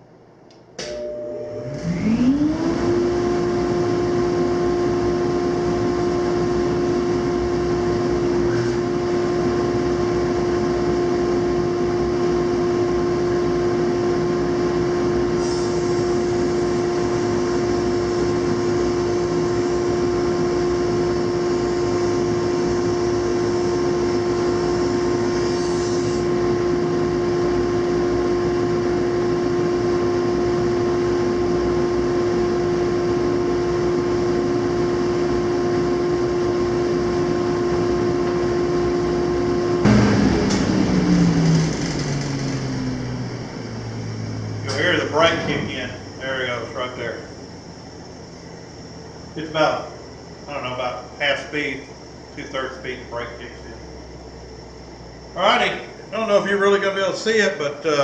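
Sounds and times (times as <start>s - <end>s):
planer motor whining: 0.8s - 11.1s, 38.1s - 48.8s
board being planed hiss: 15.4s - 16.8s, 25.1s - 26.3s.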